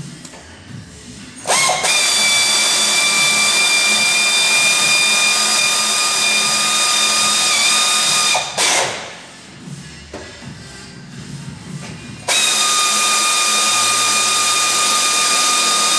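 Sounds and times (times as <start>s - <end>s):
electric drill whining: 1.5s - 9.1s, 12.3s - 15.9s.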